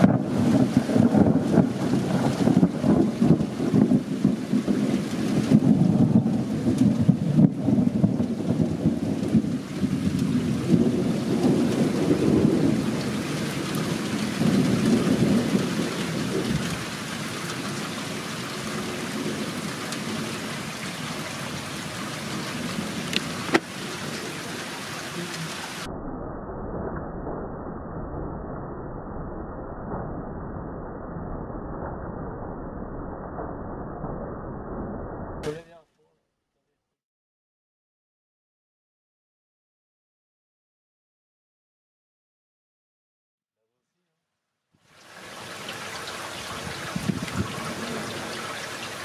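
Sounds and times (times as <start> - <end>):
steady rain: 0.0 - 25.9, 35.4 - 35.8, 44.8 - 49.0
rolling thunder rumble: 0.0 - 35.6, 45.8 - 49.0.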